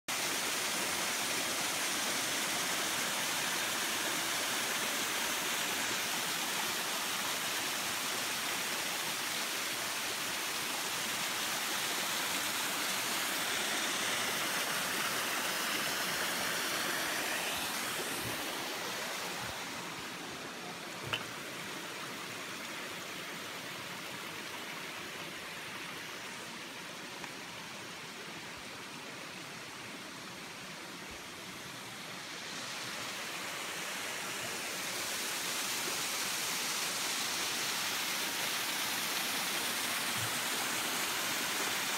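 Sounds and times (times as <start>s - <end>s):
waterfall splashing over rocks: 0.1s - 41.9s.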